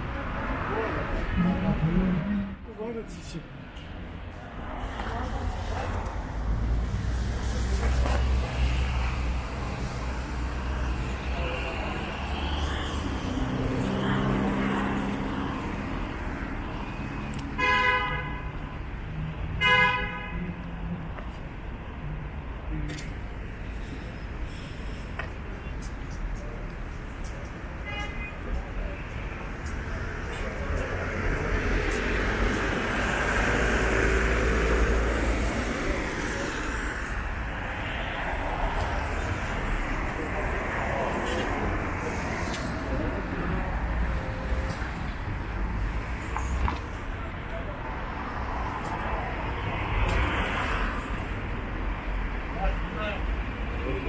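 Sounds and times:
passing vehicles rumble: 0.0 - 54.0
road traffic: 0.0 - 54.0
vehicle horn honking: 19.6 - 20.4.

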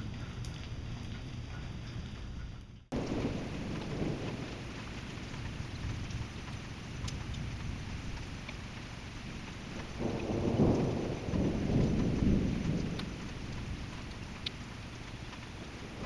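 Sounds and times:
steady rain: 0.0 - 16.0
thunder rumbling: 0.0 - 16.0
water drips ticking: 0.0 - 16.0.

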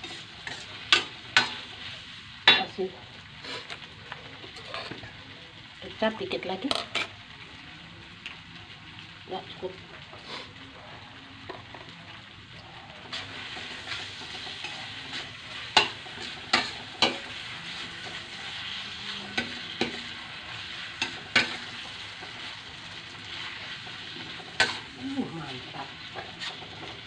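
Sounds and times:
noodles sizzling in a wok: 0.0 - 27.0
spatula clacking against pan: 15.7 - 17.2.

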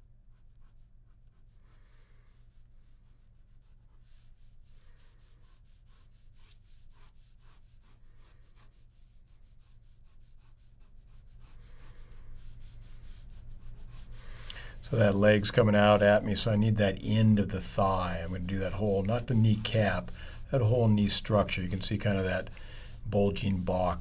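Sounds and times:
pen scratching on paper: 0.3 - 16.3.

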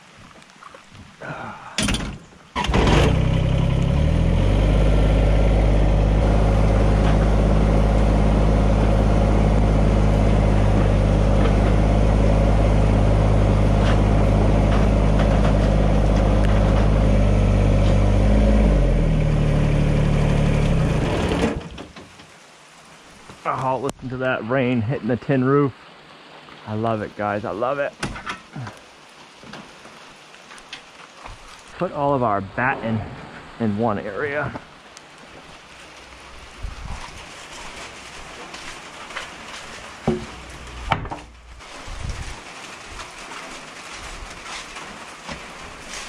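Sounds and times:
engine cranking and starting: 1.8 - 4.8, 17.8 - 21.9
engine knocks: 1.8 - 22.2
engine running: 2.6 - 21.9, 37.4 - 42.2.

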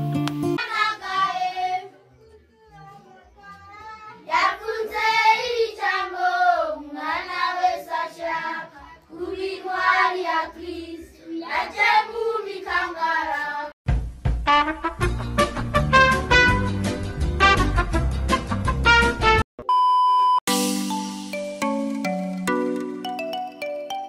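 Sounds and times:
children singing together: 0.6 - 2.0, 4.2 - 13.8
swing music with brass: 13.9 - 19.4.

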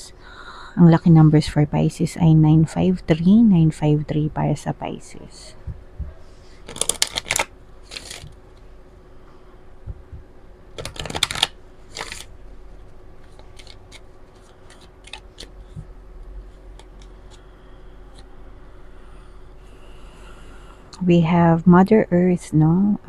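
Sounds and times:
faint steady hum: 0.0 - 23.0
cards being shuffled: 6.6 - 8.4, 10.8 - 12.3, 13.2 - 15.9, 16.5 - 17.4
cards clicking and tapping: 6.7 - 8.4, 10.8 - 12.3, 13.2 - 15.9.

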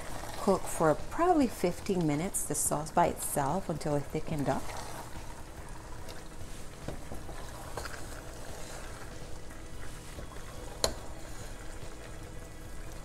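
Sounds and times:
pasta squelching in sauce: 4.5 - 13.0
spoon scraping pan: 6.5 - 12.2.

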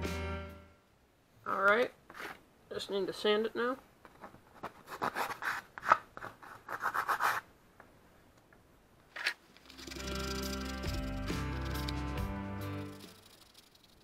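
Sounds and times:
background music: 0.0 - 0.8, 9.7 - 13.3
sandpaper rubbing wood: 6.4 - 7.4.

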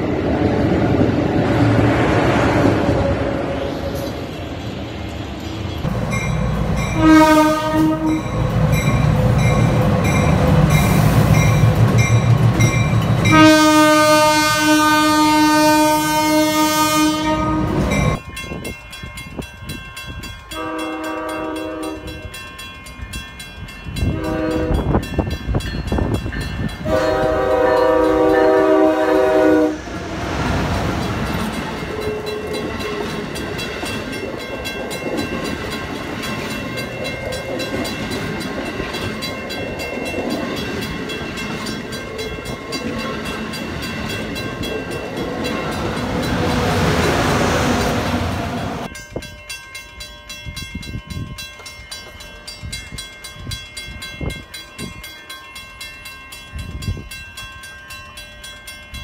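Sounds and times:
train rushing over rails: 0.0 - 59.0
multi-note train horn: 6.9 - 8.4, 13.2 - 18.1, 20.6 - 22.2, 24.0 - 25.0, 26.8 - 30.0
single-note train horn: 6.9 - 8.4, 13.2 - 18.1, 20.6 - 22.2, 24.0 - 25.0, 26.8 - 30.0.

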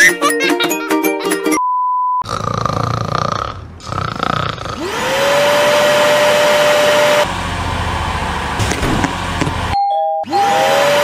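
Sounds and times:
appliance motor whine: 4.7 - 11.0.

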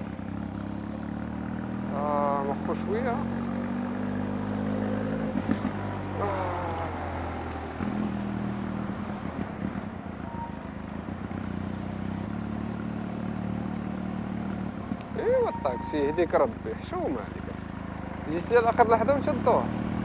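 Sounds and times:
motorcycle engine running: 0.0 - 20.0
brief falling tone: 10.2 - 10.7, 15.3 - 16.4.

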